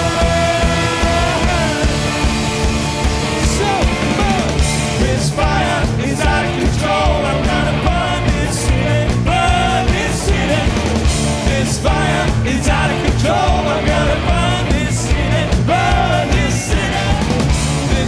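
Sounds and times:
person singing: 0:00.0 - 0:02.3, 0:03.3 - 0:10.8
live rock band playing: 0:00.0 - 0:18.0.

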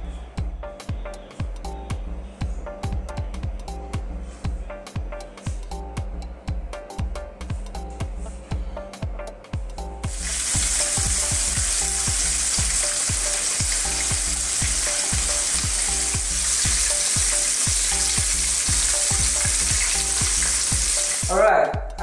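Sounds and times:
musical beat: 0:00.0 - 0:22.0
fish sizzling in frying pan: 0:10.1 - 0:21.3.

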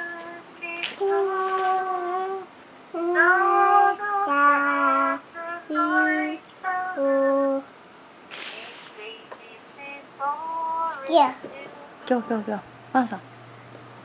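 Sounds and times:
high voice singing long notes: 0:01.0 - 0:07.7.

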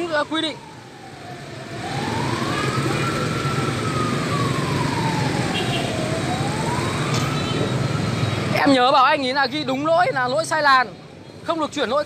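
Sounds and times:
siren wailing: 0:00.0 - 0:08.9.

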